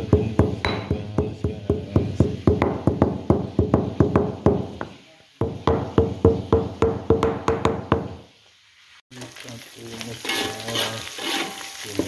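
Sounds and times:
pestle pounding in stone mortar: 0:00.0 - 0:08.2.

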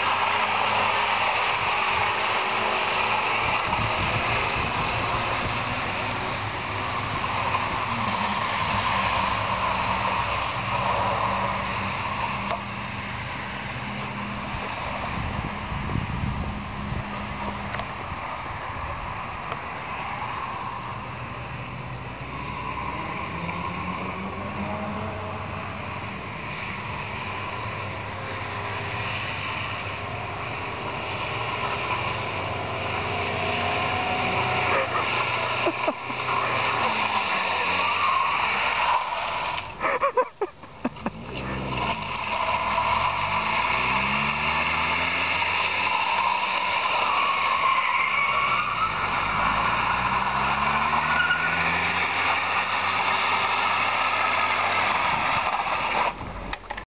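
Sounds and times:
steady rushing noise: 0:00.0 - 0:21.4
car engine approaching: 0:00.0 - 0:56.9
wooden boards scraping over road: 0:31.0 - 0:56.8.

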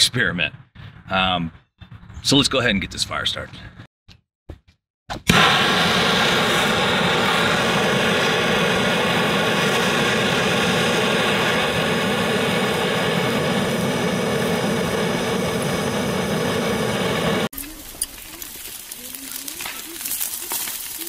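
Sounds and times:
gas torch hissing: 0:05.3 - 0:18.9.

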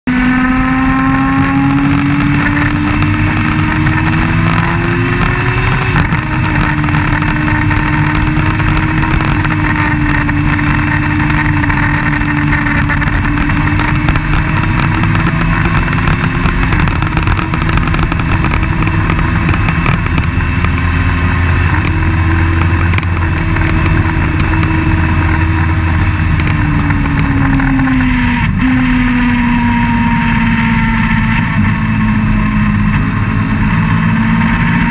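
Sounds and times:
race car engine: 0:00.0 - 0:34.9
wind and road noise: 0:00.0 - 0:34.9.

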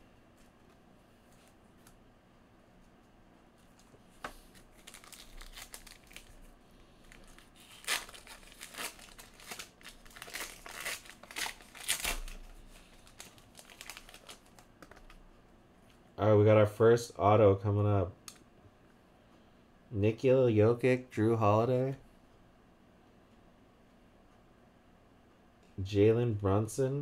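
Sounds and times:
foil wrapper tearing and crinkling: 0:04.6 - 0:15.2.

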